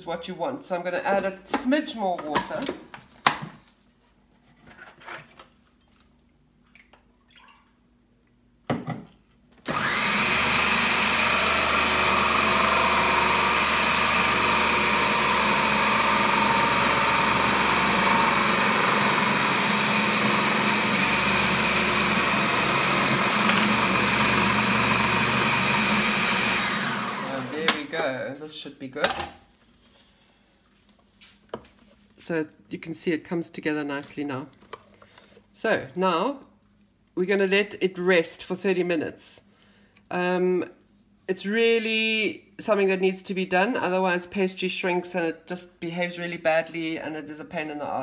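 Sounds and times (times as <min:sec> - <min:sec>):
food processor motor running: 0:09.7 - 0:27.8
spoon and lid knocks: 0:23.5 - 0:24.1.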